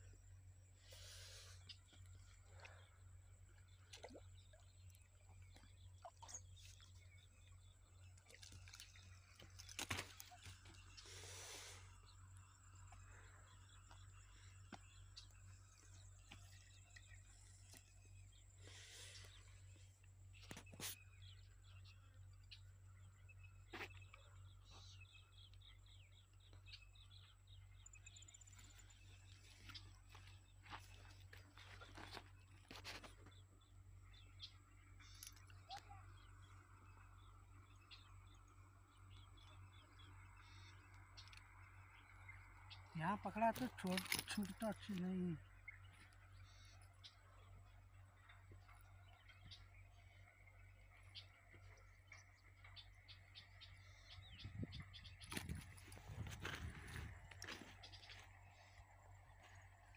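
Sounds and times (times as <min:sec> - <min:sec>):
high chirps of small wildlife: 0:00.1 - 0:59.9.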